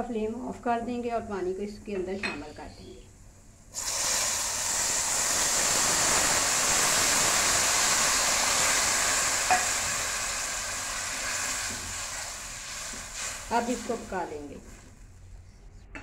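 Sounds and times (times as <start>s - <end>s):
water sizzling in hot fat: 3.7s - 15.2s.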